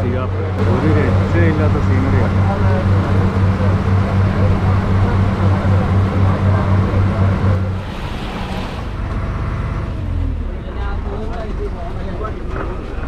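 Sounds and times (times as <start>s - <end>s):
boat engine droning: 0.0s - 11.7s
water and hull noise: 0.5s - 9.2s.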